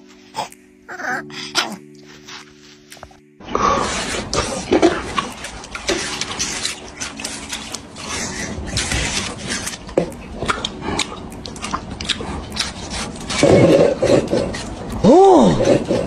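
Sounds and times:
cat chewing watermelon: 3.6s - 16.0s.

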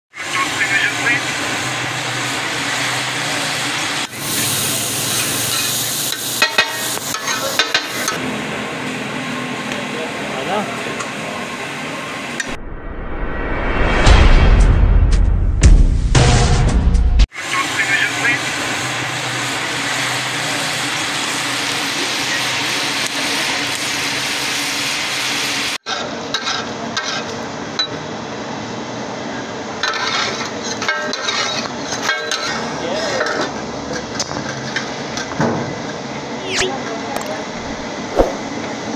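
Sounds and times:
meat sizzling on a griddle: 0.2s - 8.2s, 17.3s - 25.8s, 29.8s - 31.6s
metal spatulas clacking on griddle: 5.5s - 8.2s, 29.8s - 33.5s.

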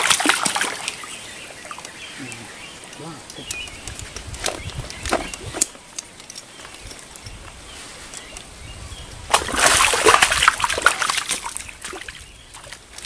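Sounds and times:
sharp clicks: 2.9s - 7.4s
fish splashing at surface: 9.3s - 12.1s.

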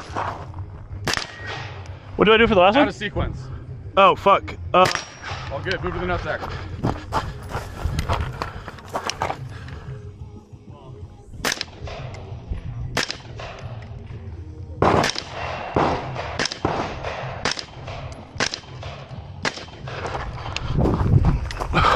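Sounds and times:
rifle shots: 1.0s - 1.8s, 11.4s - 12.2s, 12.9s - 13.9s, 14.8s - 20.0s.

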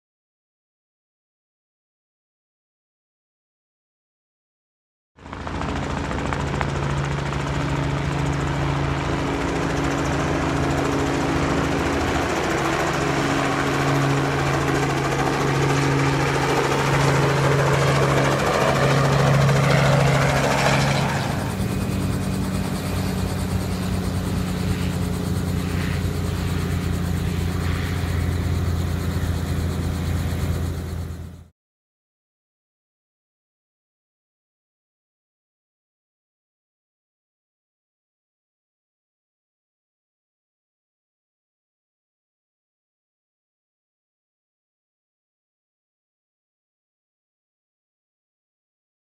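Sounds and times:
light aircraft engine and propeller: 5.2s - 31.5s.

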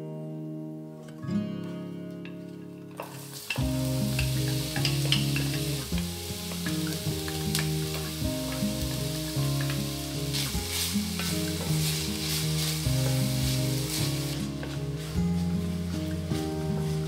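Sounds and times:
background music: 0.0s - 17.0s
onions sizzling in a pan: 3.0s - 17.0s
wooden spatula stirring: 3.4s - 17.0s.

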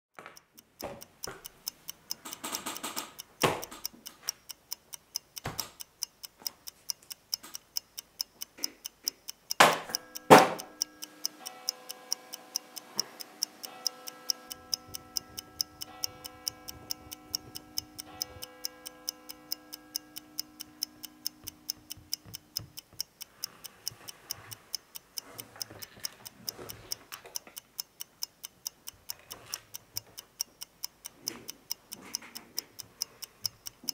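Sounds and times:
clock ticking quickly: 0.1s - 33.9s
ringing steady tones: 9.3s - 22.8s.

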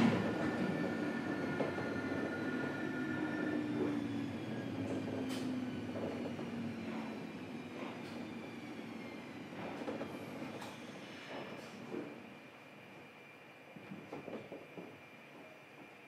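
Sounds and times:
electric train running rumble: 0.0s - 16.0s.

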